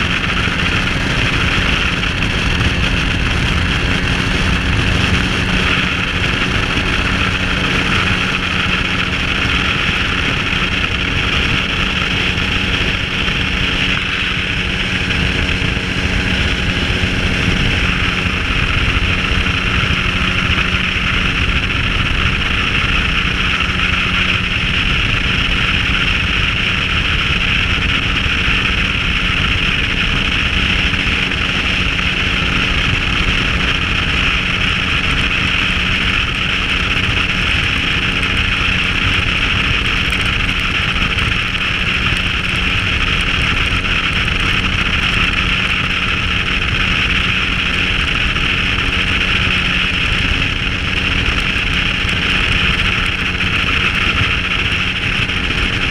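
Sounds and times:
microlight engine and propeller drone: 0.0s - 55.9s
wind rushing over microphone: 0.0s - 55.9s.

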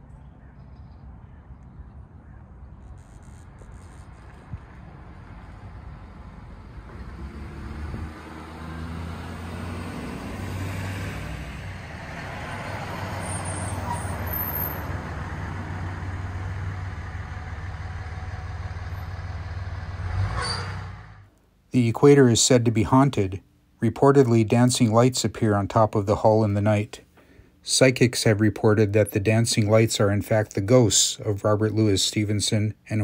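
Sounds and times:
vehicle engine humming: 2.7s - 21.3s.

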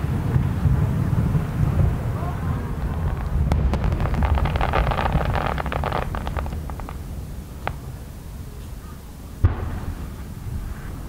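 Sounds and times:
low rumble: 0.0s - 10.7s
fireworks crackling: 0.0s - 11.0s.

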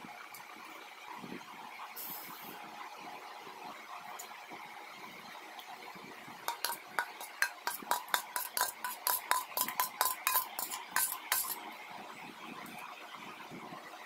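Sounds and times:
spoon clinking in steel bowl: 6.5s - 11.6s.

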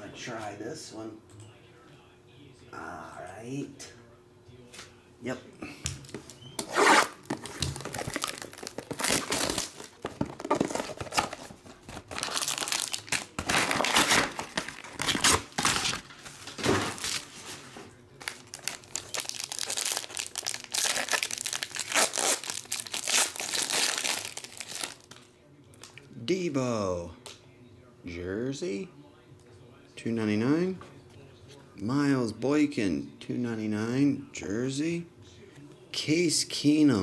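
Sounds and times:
foil pack crinkling: 6.2s - 25.3s
foil tearing: 6.6s - 17.6s, 18.2s - 25.2s.

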